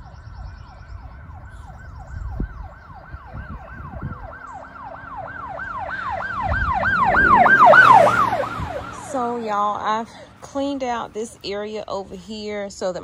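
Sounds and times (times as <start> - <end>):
police siren yelping: 0.0 - 10.3.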